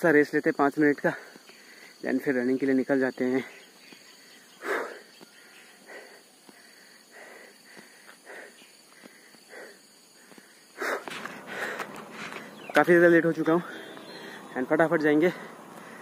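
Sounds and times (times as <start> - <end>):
man breathing hard: 1.1 - 2.0, 3.4 - 12.7, 13.6 - 14.6, 15.2 - 16.0.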